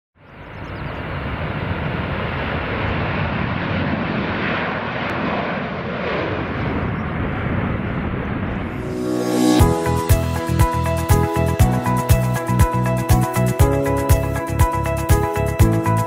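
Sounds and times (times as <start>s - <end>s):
jet airliner taking off: 0.3s - 12.6s.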